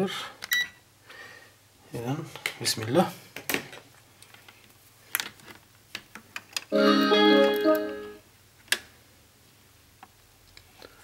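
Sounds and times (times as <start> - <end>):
electronic power-on melody: 6.7 - 8.2.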